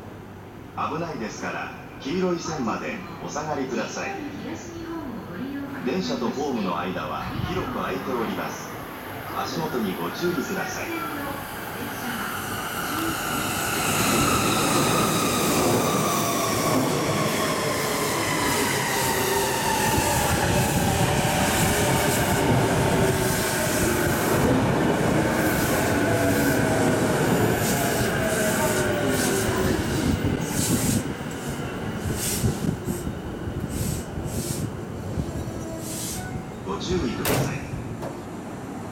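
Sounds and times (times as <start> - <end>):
wheels rumbling on rail: 16.7 - 36.6.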